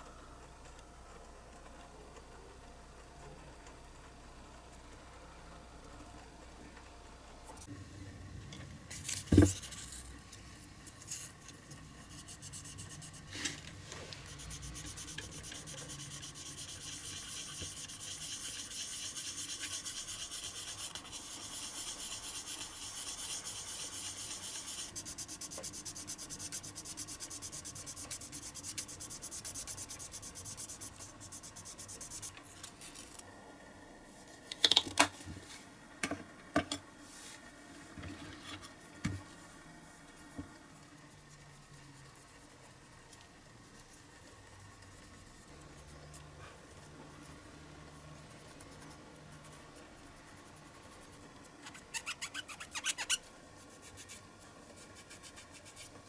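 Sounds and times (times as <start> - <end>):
sandpaper rubbing on plastic: 14.2 - 32.4, 48.8 - 56.0.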